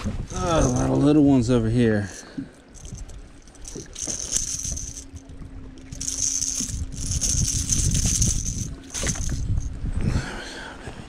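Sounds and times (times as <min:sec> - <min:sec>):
boat motor humming: 0:00.1 - 0:10.0
gear rattling on deck: 0:00.3 - 0:01.0, 0:02.8 - 0:05.2, 0:05.8 - 0:09.7.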